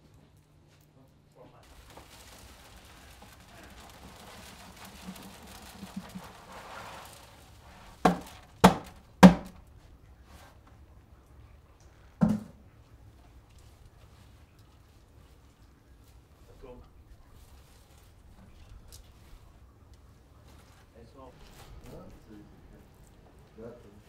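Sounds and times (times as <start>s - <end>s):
grape pomace sliding and rustling: 1.6s - 8.6s
container thudding: 7.7s - 9.6s, 12.2s - 12.6s.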